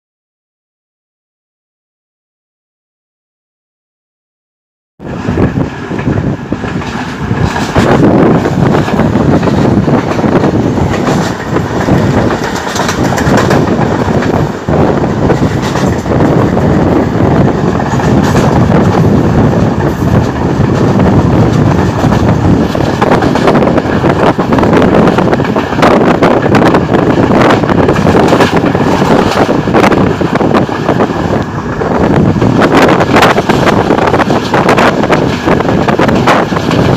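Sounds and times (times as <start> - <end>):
train running on track: 5.0 - 36.9
small knocks of train wheels: 6.0 - 14.4, 15.3 - 16.3.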